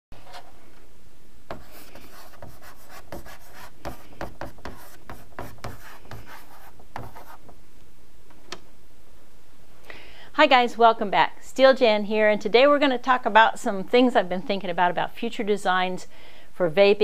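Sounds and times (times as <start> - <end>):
chalk writing on a blackboard: 1.5 - 7.4.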